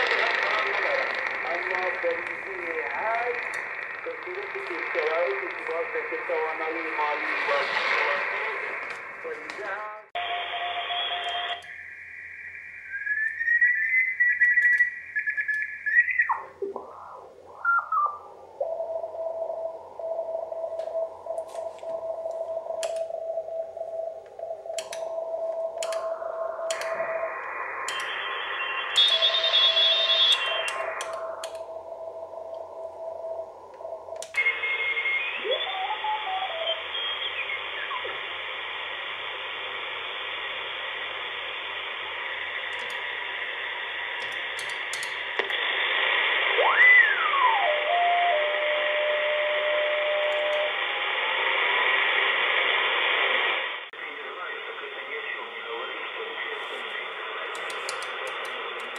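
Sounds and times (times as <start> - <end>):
radio band hiss: 0.0 - 19.2, 19.8 - 58.9
heterodyne whistles gliding: 10.3 - 16.5, 26.4 - 31.3, 34.4 - 38.1
receiver switch clicks: 25.8 - 26.1, 44.2 - 45.6.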